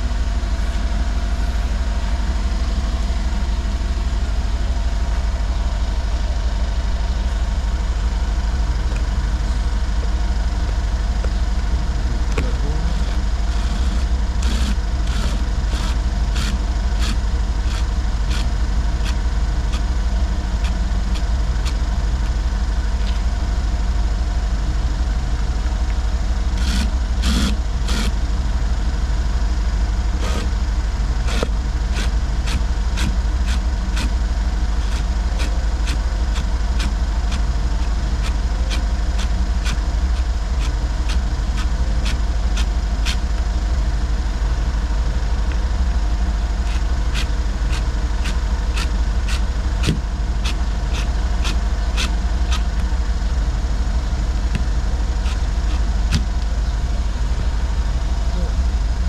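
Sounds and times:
car engine idling: 0.0 - 59.0
sharp ticks: 46.6 - 52.9.

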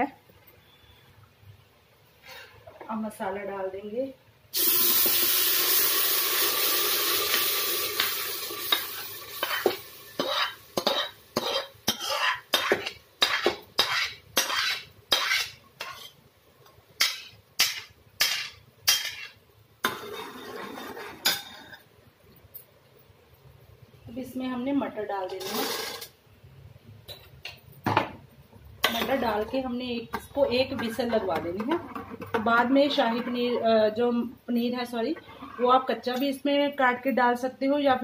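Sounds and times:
paste sizzling in hot oil: 4.6 - 16.2
metal spoon scraping and tapping: 8.7 - 16.2, 17.0 - 21.7, 28.8 - 29.4.

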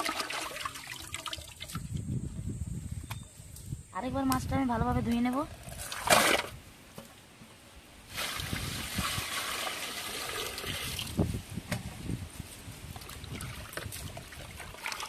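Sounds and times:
water pouring and splashing: 0.0 - 2.0, 5.5 - 6.6, 8.1 - 11.4, 12.8 - 15.0.

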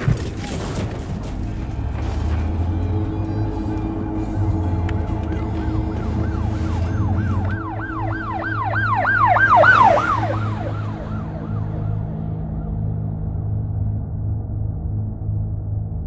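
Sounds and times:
emergency siren yelping: 2.1 - 13.0.

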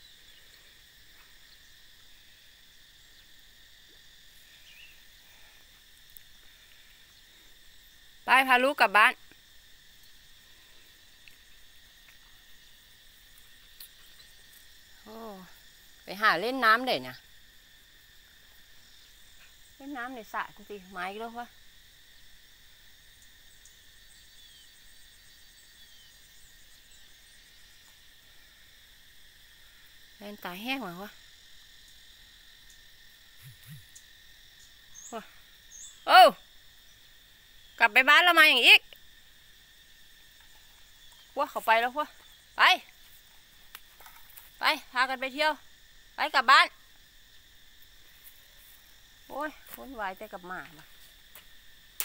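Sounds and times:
insects droning: 0.0 - 52.0
falling chirps: 33.4 - 34.0.

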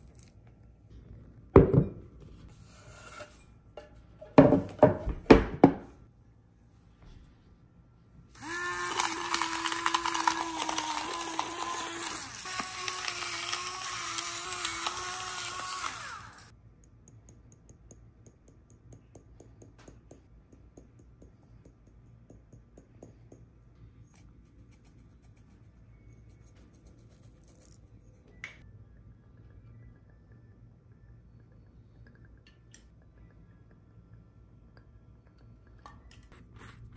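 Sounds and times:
kitchen appliance motor running: 8.3 - 16.5.

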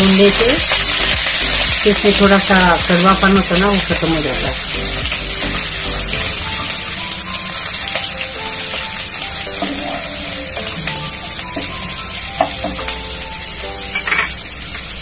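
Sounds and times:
ginger sizzling in hot oil: 0.0 - 15.0.

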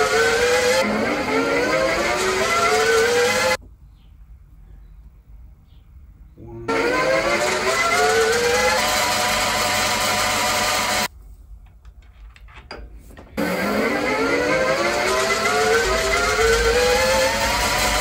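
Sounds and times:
milling machine drilling with whine: 0.0 - 3.6, 6.7 - 11.1, 13.4 - 18.0.

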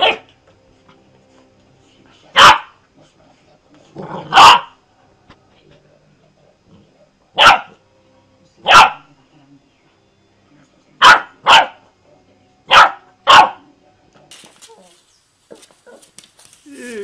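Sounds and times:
puppy barking: 0.0 - 0.3, 2.3 - 2.8, 4.2 - 4.8, 7.4 - 7.8, 8.6 - 9.1, 11.0 - 11.8, 12.7 - 13.6.

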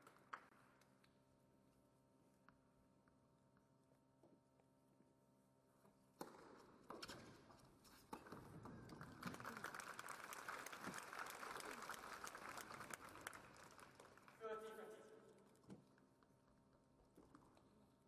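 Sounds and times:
crowd applauding: 8.9 - 14.9.

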